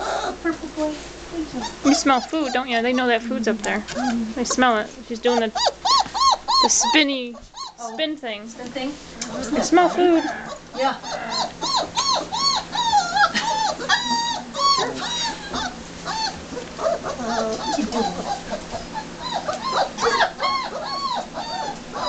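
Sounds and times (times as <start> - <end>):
puppies whining and yipping: 0.0 - 0.4, 1.5 - 3.2, 5.2 - 8.0, 9.4 - 22.0.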